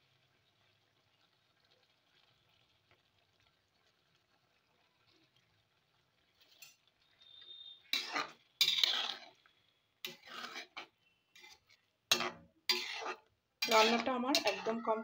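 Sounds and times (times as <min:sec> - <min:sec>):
spatula scraping metal pan: 0:06.4 - 0:15.0.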